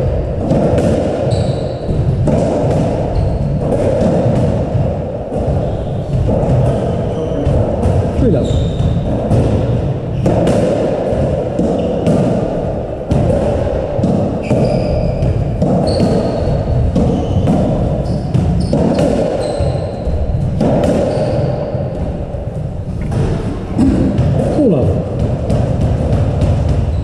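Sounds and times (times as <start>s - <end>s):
background noise in court: 0.0s - 27.0s
squash ball cracking off rackets: 0.0s - 27.0s
sneaker squeaks on wooden floor: 1.2s - 4.4s, 5.4s - 9.2s, 11.6s - 12.0s, 14.1s - 24.2s.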